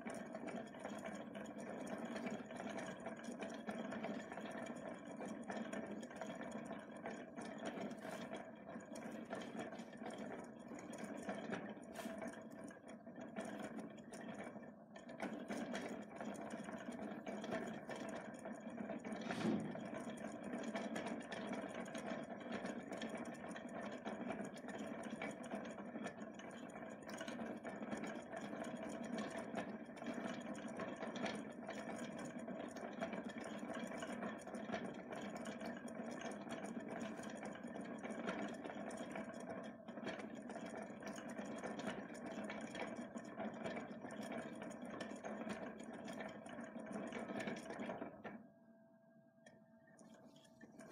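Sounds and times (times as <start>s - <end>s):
thread winder whirring: 19.0s - 20.2s.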